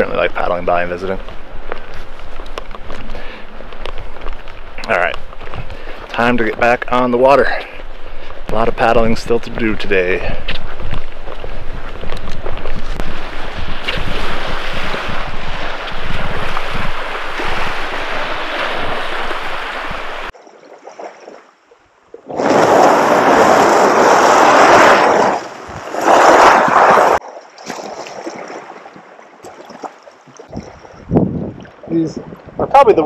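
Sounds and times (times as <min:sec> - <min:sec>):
kayak hull scraping over pebbles: 0:07.8 - 0:20.3, 0:22.3 - 0:27.2
wind buffeting microphone: 0:07.8 - 0:20.3, 0:30.4 - 0:33.0.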